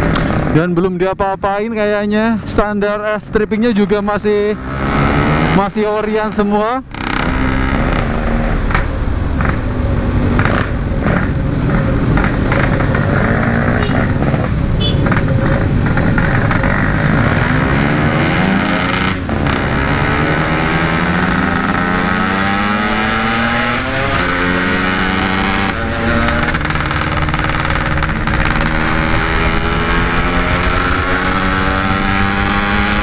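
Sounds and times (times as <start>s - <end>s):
two-stroke motorcycle engine: 10.4s - 33.0s.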